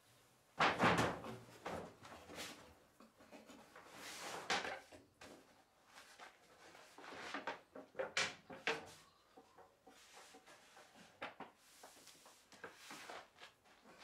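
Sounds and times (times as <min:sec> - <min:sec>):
wood knocking and scraping on wood: 0:03.2 - 0:14.0.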